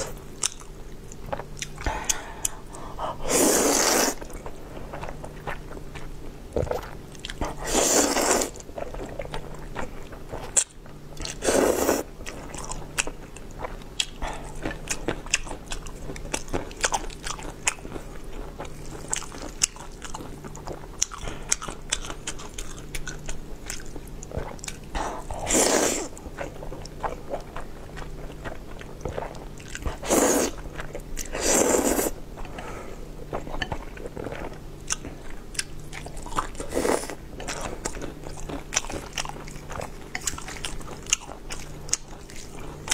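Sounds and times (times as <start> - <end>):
loud noodle slurps: 3.3 - 4.3, 7.6 - 8.6, 11.4 - 12.1, 25.4 - 26.1, 30.0 - 30.6, 31.3 - 32.2.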